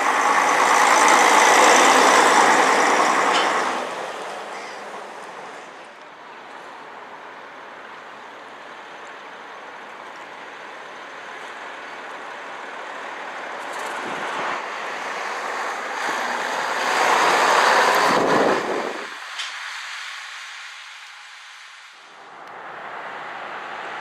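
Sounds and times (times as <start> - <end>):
coach pulling away: 0.0 - 5.7
coach engine and tyres passing: 0.0 - 24.0.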